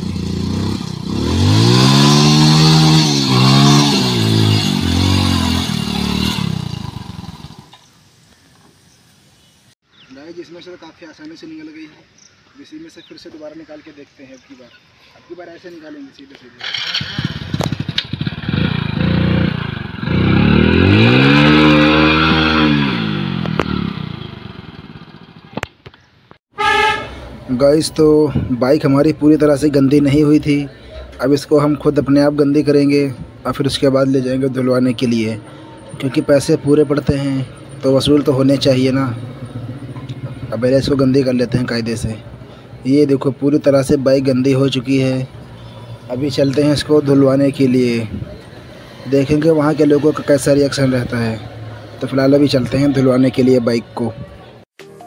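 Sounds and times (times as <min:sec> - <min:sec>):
motorcycle engine revving hard: 0:00.0 - 0:07.7, 0:16.6 - 0:25.5
motorcycle engine revving: 0:00.0 - 0:07.8, 0:16.6 - 0:25.6, 0:34.0 - 0:42.5, 0:44.4 - 0:53.6.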